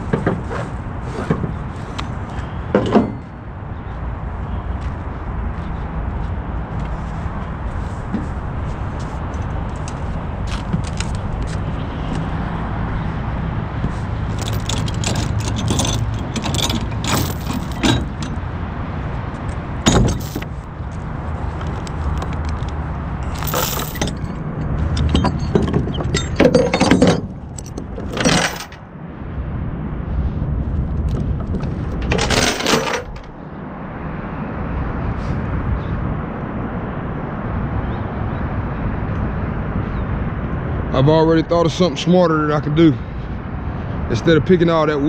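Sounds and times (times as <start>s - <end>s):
metal chains jangling: 14.3s - 18.4s, 19.9s - 20.6s, 23.2s - 28.8s, 32.0s - 33.3s.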